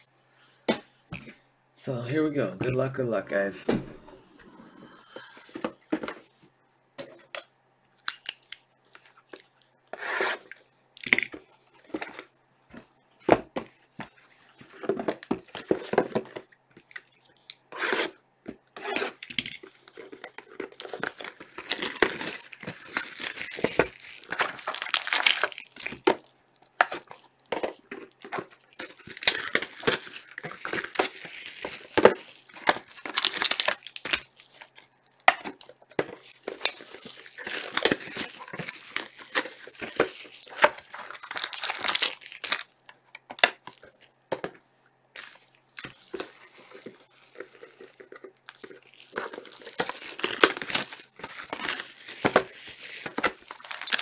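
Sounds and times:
plastic shrink-wrap tearing: 0:18.8 - 0:27.3, 0:27.9 - 0:42.8, 0:45.2 - 0:54.0.

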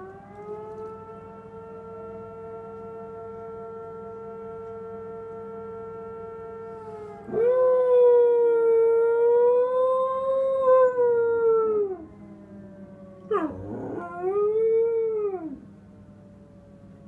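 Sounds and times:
faint siren tone: 0:00.0 - 0:17.0
dog howling: 0:13.2 - 0:15.6.

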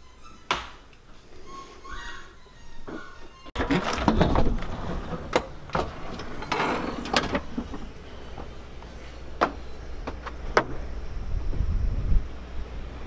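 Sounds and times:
door clunking: 0:02.0 - 0:10.9
low steady rumble: 0:04.2 - 0:13.0.

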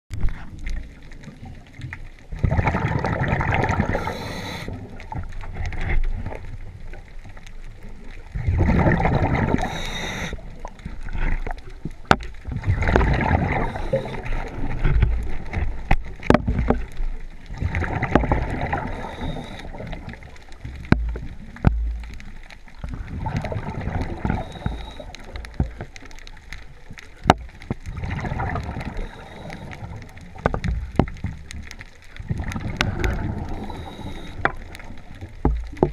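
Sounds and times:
regulator exhale bubbling: 0:02.4 - 0:05.2, 0:08.4 - 0:11.4, 0:12.7 - 0:14.8, 0:23.0 - 0:25.8, 0:32.2 - 0:35.1.

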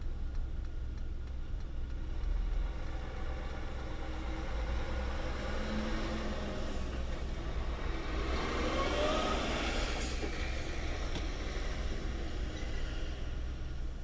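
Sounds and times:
vehicle speeding up: 0:02.0 - 0:12.5.

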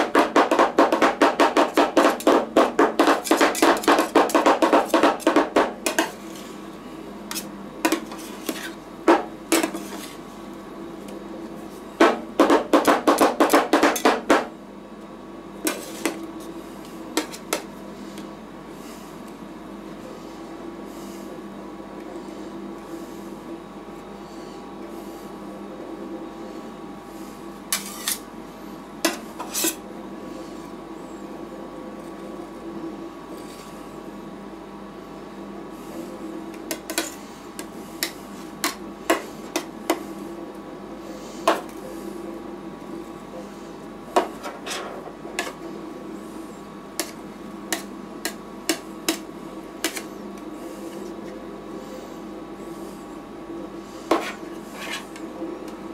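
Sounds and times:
metal spatulas scraping and tapping: 0:00.4 - 0:06.5, 0:07.3 - 0:08.8, 0:09.5 - 0:10.2, 0:17.2 - 0:17.7, 0:27.7 - 0:28.2, 0:29.1 - 0:29.8, 0:36.7 - 0:40.0, 0:44.2 - 0:45.6, 0:47.0 - 0:50.1, 0:54.1 - 0:55.2.

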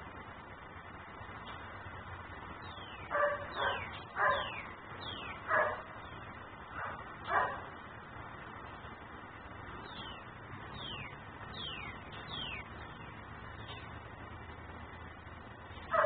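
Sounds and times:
dog barking: 0:03.1 - 0:04.6, 0:05.5 - 0:06.0, 0:06.8 - 0:07.7.

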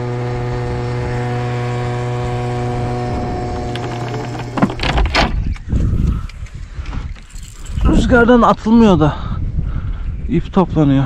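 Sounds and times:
small boat motor humming: 0:00.0 - 0:05.4
loud thumps: 0:02.4 - 0:05.6.

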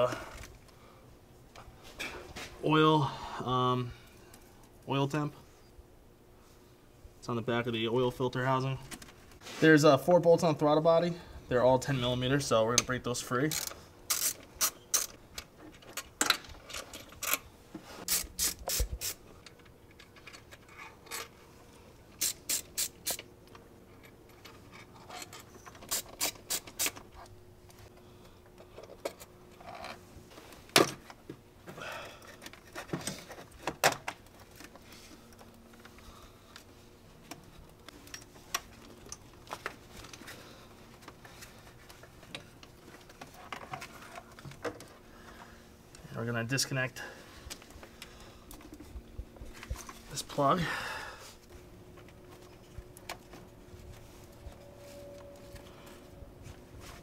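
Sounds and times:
socket ratchet clicking: 0:13.6 - 0:15.2, 0:22.2 - 0:23.2.

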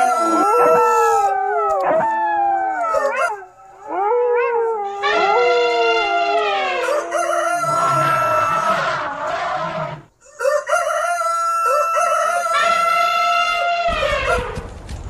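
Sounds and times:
dogs howling: 0:00.0 - 0:10.1.

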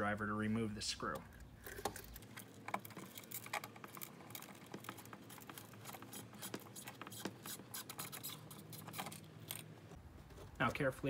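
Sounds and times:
screwdriver scraping: 0:01.7 - 0:09.7.

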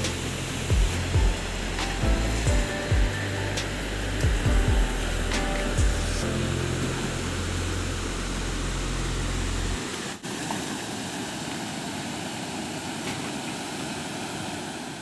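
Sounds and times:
low steady drone: 0:00.0 - 0:10.2
water rushing over dam: 0:00.0 - 0:15.0.

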